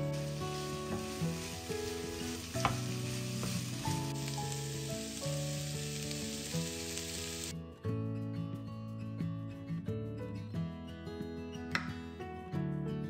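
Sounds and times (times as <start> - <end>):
vegetables sizzling in a frying pan: 0.0 - 7.5
utensil knocking against a pan: 2.6 - 3.6.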